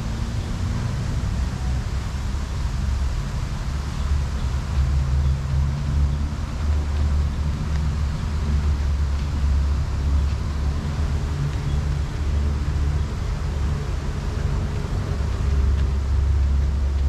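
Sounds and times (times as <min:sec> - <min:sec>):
background hiss: 0:00.0 - 0:17.0
low rumble of city ambience: 0:00.0 - 0:17.0.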